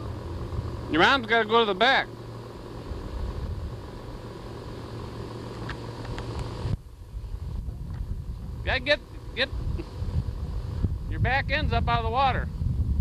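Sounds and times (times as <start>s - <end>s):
steady low hum and hiss: 0.0s - 13.0s
wind rumbling on microphone: 2.6s - 4.3s, 6.0s - 13.0s.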